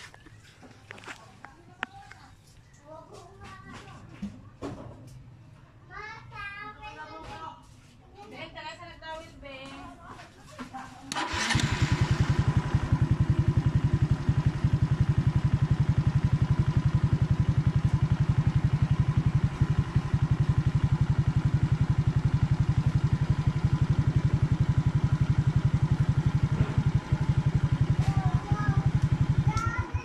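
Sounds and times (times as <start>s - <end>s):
motorcycle engine idling: 11.1s - 30.0s.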